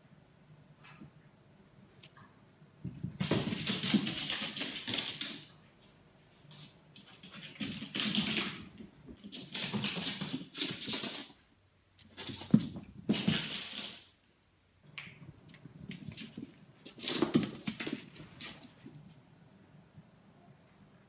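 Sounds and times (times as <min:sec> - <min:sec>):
cat claws skittering on wooden floor: 0:03.1 - 0:05.5, 0:06.5 - 0:11.4, 0:12.0 - 0:14.1.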